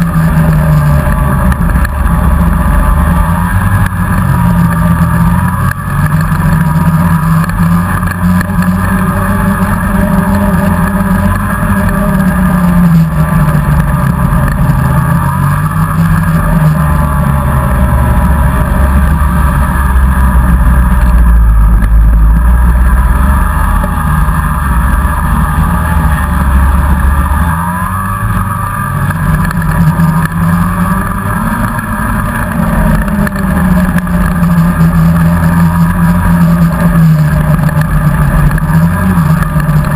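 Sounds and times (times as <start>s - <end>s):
deep rumble: 0.0s - 39.9s
snowmobile engine running: 0.0s - 39.9s.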